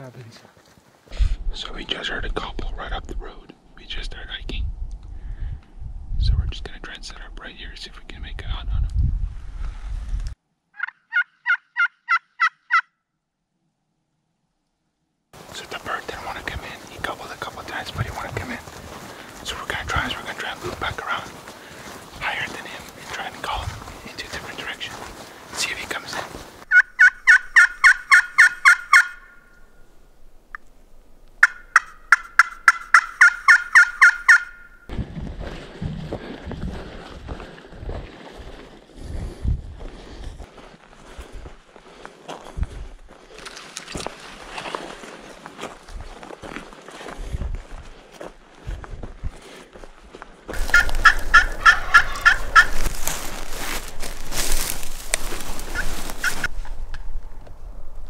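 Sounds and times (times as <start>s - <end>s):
wind on microphone: 4.4s - 6.8s, 7.9s - 10.4s, 17.8s - 21.0s, 23.5s - 24.1s, 34.9s - 40.4s, 42.5s - 43.0s, 47.2s - 47.9s, 50.6s - 58.0s
turkey call yelps: 10.8s - 12.9s, 26.7s - 29.6s, 31.4s - 34.9s, 50.6s - 52.8s.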